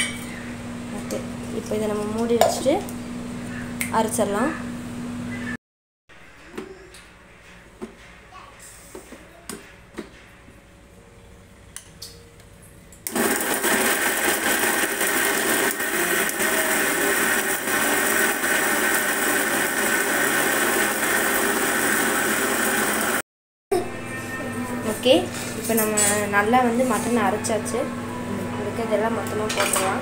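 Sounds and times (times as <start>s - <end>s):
mixer grinder running: 13.0s - 23.2s.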